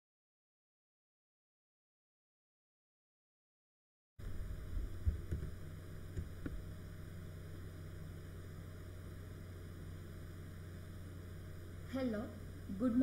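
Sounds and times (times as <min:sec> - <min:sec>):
microphone hum and hiss: 0:04.2 - 0:13.0.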